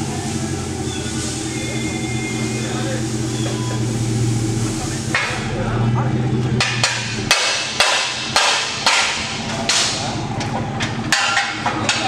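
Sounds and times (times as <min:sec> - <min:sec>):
hammer striking: 0:06.6 - 0:10.1.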